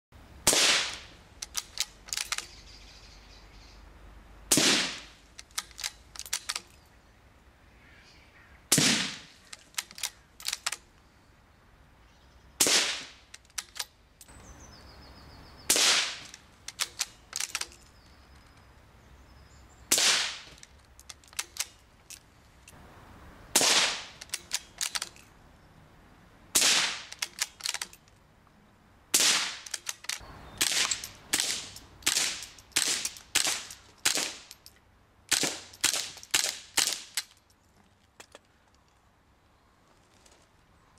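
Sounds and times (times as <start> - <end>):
rifle shots: 0.4 - 2.3, 4.5 - 5.2, 8.7 - 10.0, 12.6 - 13.2, 15.7 - 17.6, 19.9 - 20.5, 23.6 - 25.0, 26.6 - 27.5, 29.2 - 34.5
small clicks: 1.4 - 2.6, 5.3 - 6.8, 9.4 - 11.0, 13.3 - 14.4, 16.2 - 18.7, 20.4 - 22.8, 24.1 - 25.3, 27.0 - 28.2, 29.6 - 39.0.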